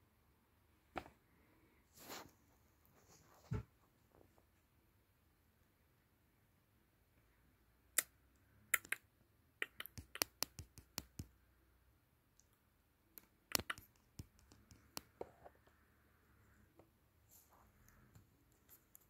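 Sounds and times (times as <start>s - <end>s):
light sharp clicks and taps: 9.6s - 11.4s, 12.3s - 15.3s.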